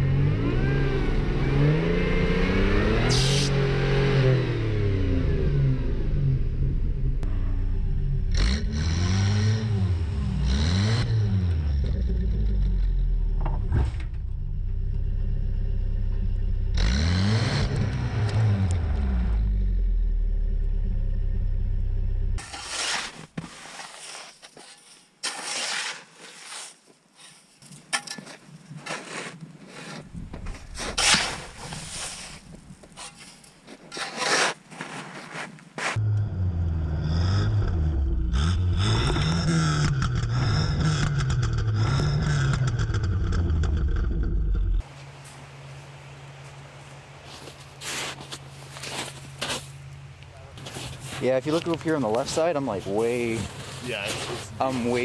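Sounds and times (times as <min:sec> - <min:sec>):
truck engine revving: 0:00.0 - 0:22.4, 0:36.0 - 0:44.8
scraping and crunching snow: 0:22.4 - 0:36.0, 0:44.8 - 0:49.9, 0:50.5 - 0:55.0.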